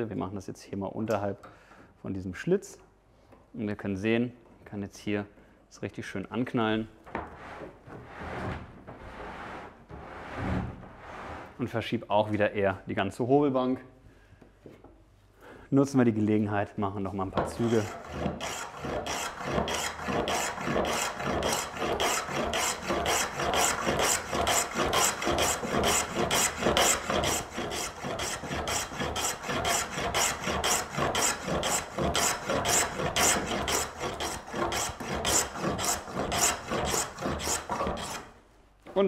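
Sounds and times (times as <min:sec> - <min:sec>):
hand plane strokes on wood: 0:17.5 - 0:38.3.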